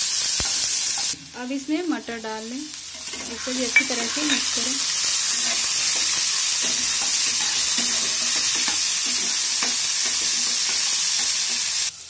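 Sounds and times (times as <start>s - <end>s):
vegetables sizzling in hot oil: 0.0s - 12.0s
spatula scraping a pan: 2.9s - 11.9s.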